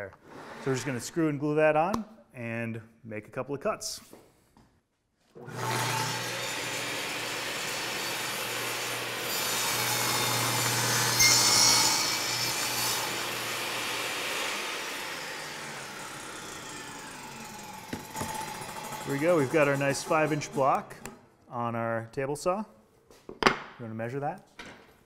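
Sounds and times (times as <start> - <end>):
table saw cutting a board: 5.4 - 21.1.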